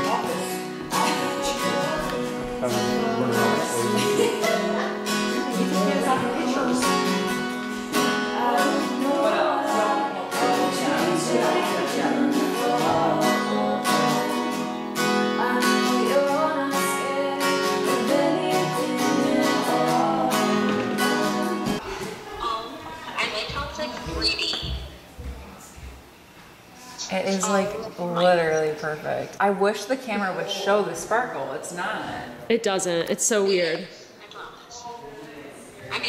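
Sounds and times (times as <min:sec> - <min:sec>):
acoustic guitar strumming: 0:00.0 - 0:21.8
woman singing: 0:00.0 - 0:21.8.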